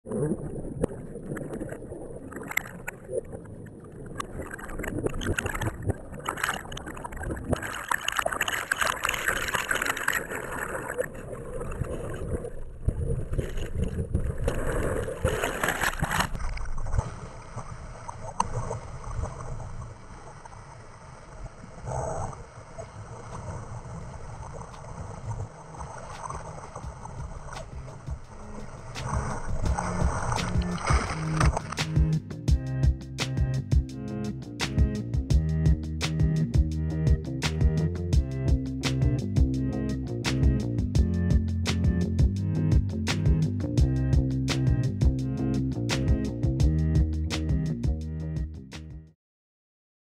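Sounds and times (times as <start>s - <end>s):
whitewater rushing underwater: 0.1s - 32.1s
water splashing: 0.1s - 32.2s.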